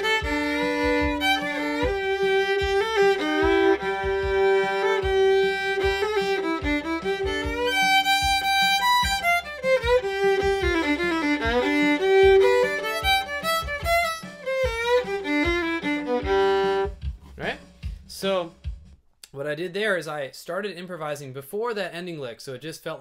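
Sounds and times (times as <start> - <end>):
solo bluegrass fiddle: 0.0 - 17.0.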